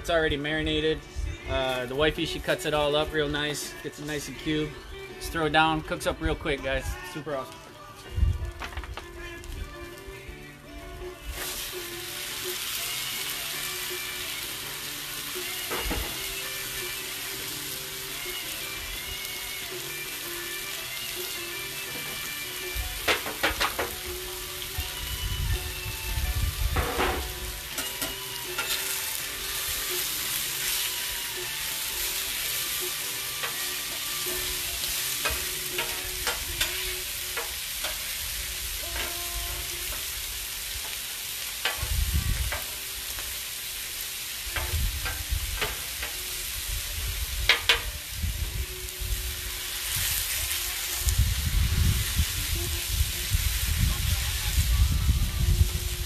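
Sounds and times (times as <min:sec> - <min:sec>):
meat sizzling on a griddle: 0:01.3 - 0:56.0
metal spatula scraping griddle: 0:26.7 - 0:40.2.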